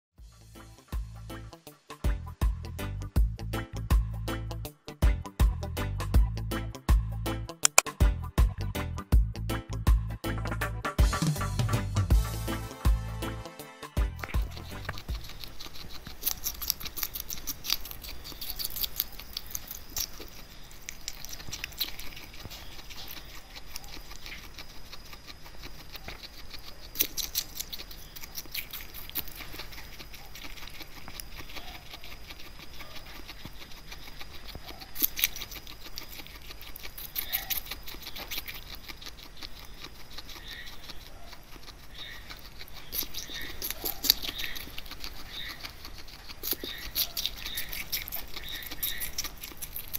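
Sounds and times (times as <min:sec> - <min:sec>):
guinea pig chewing crunchily: 0:10.6 - 0:49.9.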